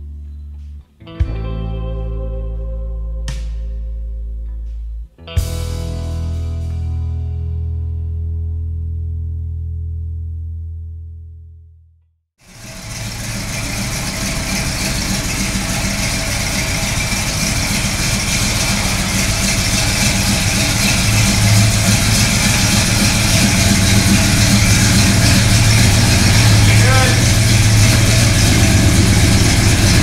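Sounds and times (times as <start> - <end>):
car engine idling: 12.4 - 30.0.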